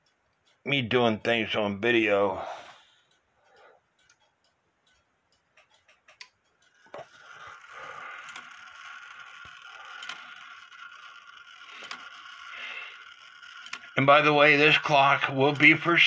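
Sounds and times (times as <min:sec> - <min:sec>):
clock movement light clicks: 0:00.0 - 0:16.0
steady ringing tone: 0:06.9 - 0:16.0.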